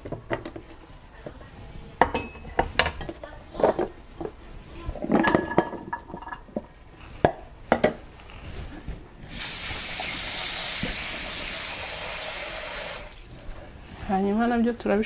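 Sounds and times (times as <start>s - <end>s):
plastic containers and utensils clinking: 2.0s - 8.0s.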